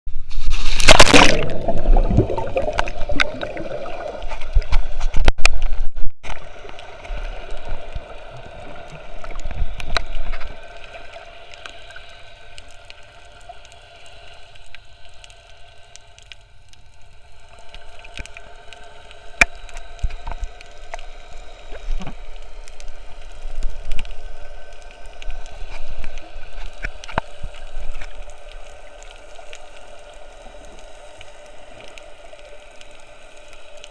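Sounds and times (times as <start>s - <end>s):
camera splashing into water: 0.6s - 1.8s
muffled underwater gurgling: 1.0s - 4.8s.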